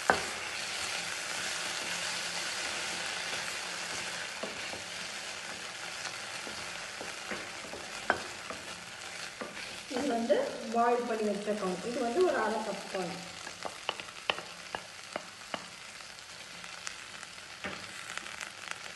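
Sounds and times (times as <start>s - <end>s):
vegetables sizzling in butter: 0.0s - 18.9s
spatula scraping pan: 0.1s - 10.3s.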